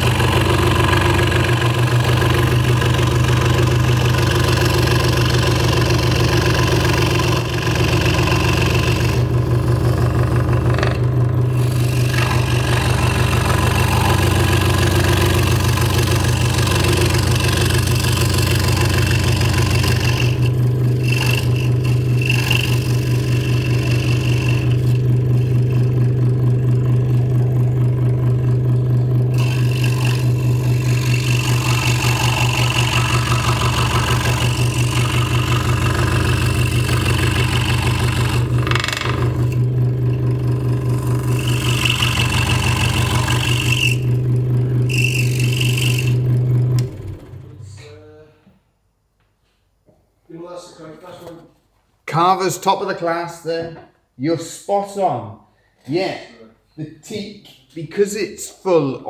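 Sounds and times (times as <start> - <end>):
saw blade rasping through wood: 0.0 - 27.5, 29.3 - 46.9
scroll saw running: 0.0 - 47.4.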